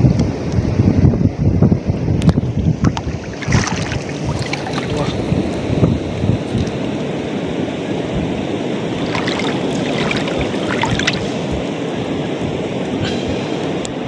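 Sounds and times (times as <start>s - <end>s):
wind rumbling on microphone: 0.0s - 14.0s
seawater lapping around legs: 2.2s - 5.6s, 8.9s - 12.1s
faint splashes: 2.3s - 5.3s, 8.9s - 11.9s.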